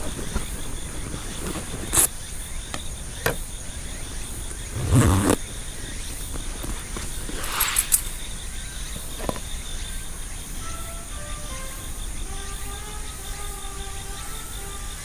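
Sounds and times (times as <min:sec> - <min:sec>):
scraping rustle with clicks: 0:00.0 - 0:03.4
insects chirping: 0:00.0 - 0:15.0
faint music notes: 0:10.2 - 0:15.0.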